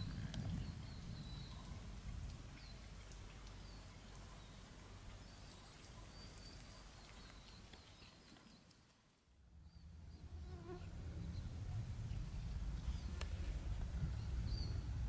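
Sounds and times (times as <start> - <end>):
low rumble: 0.0 - 2.9, 10.9 - 15.0.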